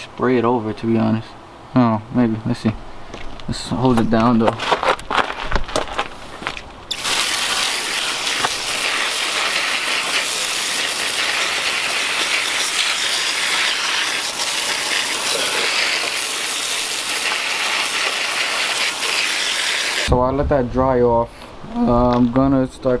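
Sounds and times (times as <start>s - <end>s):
hose nozzle spraying water: 6.9s - 20.1s.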